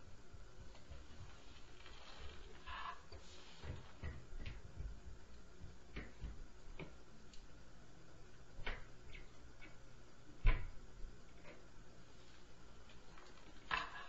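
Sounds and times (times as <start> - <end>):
knocks and thumps through ceiling: 0.0 - 7.0, 8.5 - 11.8.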